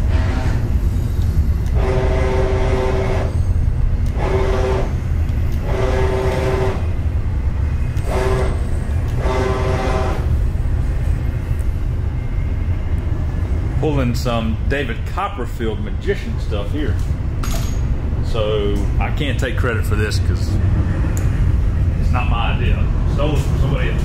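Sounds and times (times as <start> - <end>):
stepper motors whining: 0.0 - 14.0
steady low rumble: 0.0 - 24.0.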